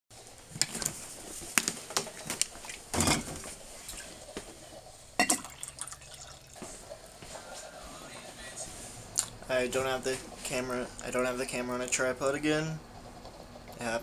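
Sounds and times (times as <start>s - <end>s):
objects knocking and rattling: 0.5s - 3.6s
coffee pouring into glass mug: 5.2s - 6.9s.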